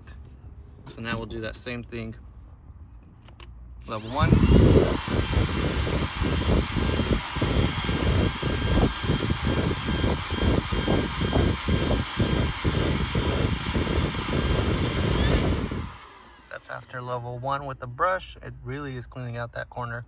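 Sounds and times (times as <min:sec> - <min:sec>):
vacuum cleaner motor whine: 0:03.8 - 0:16.9.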